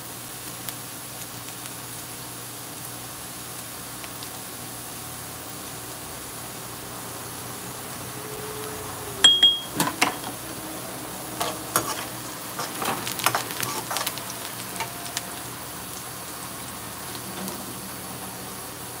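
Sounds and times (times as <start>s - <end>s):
onions sizzling in oil: 0.0s - 19.0s
metal spoon scraping a pan: 11.3s - 14.9s.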